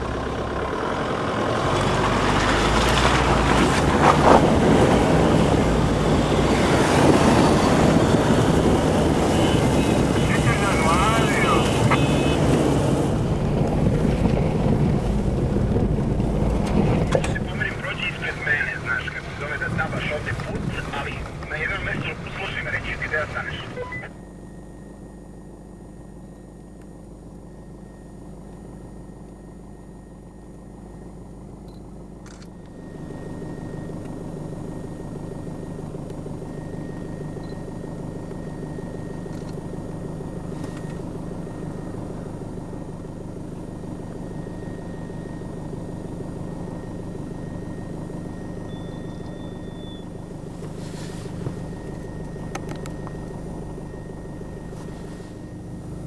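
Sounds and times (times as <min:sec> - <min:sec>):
vehicle engine running: 0:00.0 - 0:56.0.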